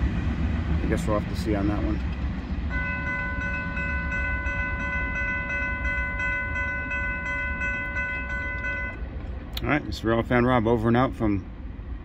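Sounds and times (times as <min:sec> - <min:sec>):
railroad crossing bell ringing: 0:02.7 - 0:09.2.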